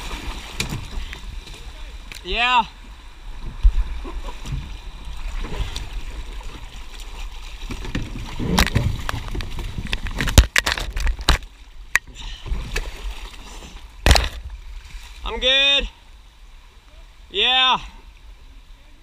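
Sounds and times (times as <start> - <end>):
kayak hull knocks and splashes: 0.0 - 1.8, 3.3 - 15.2
floodwater sloshing and gurgling: 0.0 - 17.3.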